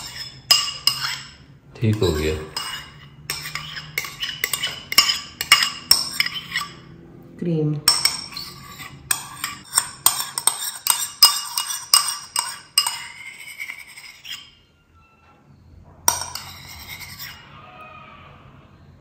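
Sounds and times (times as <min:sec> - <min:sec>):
spoon clinking against bowl: 0:00.0 - 0:06.9, 0:07.8 - 0:14.6, 0:16.1 - 0:17.4.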